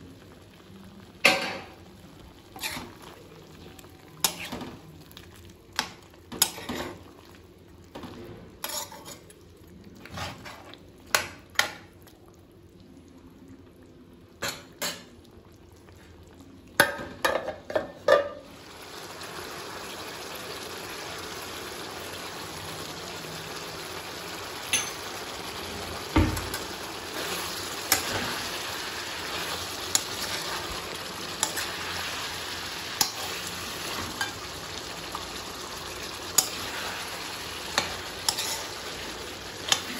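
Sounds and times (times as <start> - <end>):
frying sizzle: 0.0 - 39.9
spoon clicking and scraping in pan: 31.4 - 31.7, 33.0 - 33.3, 37.7 - 38.8, 39.6 - 39.9.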